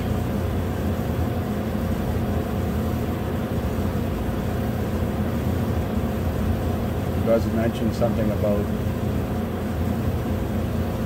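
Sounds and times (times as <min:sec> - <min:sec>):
faint steady whine: 0:00.0 - 0:11.0
machinery drone: 0:05.2 - 0:11.0.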